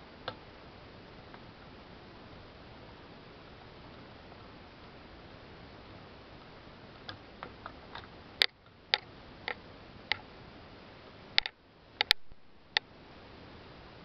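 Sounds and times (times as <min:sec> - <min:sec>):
faint steady hiss: 0:00.0 - 0:14.0
sharp clicks and ticks: 0:11.4 - 0:12.8.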